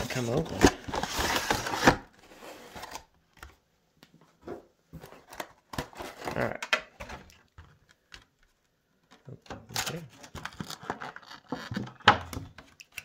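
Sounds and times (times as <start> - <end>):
packaging rustling and scraping: 0.0 - 3.1, 4.9 - 6.5.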